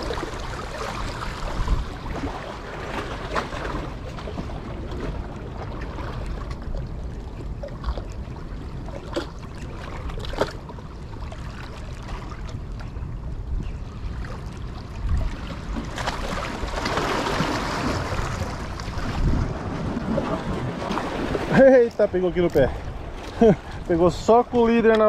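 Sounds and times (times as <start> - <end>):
wind noise on microphone: 0.0 - 11.2, 12.0 - 24.9
water washing against rocks: 15.6 - 25.0.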